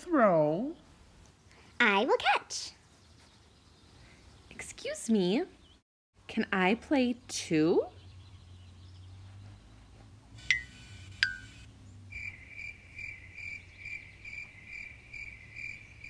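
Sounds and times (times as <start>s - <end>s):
crickets chirping: 11.2s - 16.0s.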